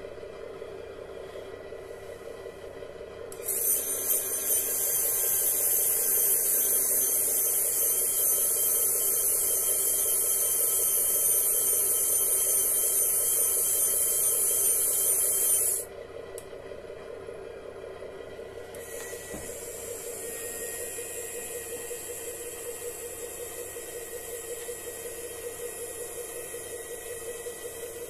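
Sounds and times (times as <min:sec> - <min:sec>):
electric actuator whirring: 0:03.3 - 0:15.8, 0:18.7 - 0:28.0.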